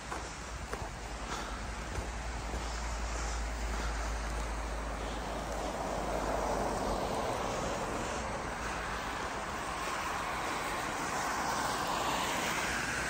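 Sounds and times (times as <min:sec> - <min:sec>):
vehicle passing: 0:00.1 - 0:13.0.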